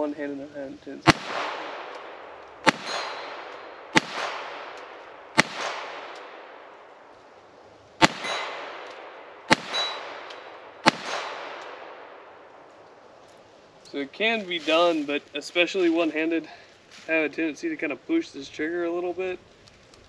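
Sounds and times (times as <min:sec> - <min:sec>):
pistol shots with echo: 0:01.0 - 0:06.8, 0:08.0 - 0:12.5.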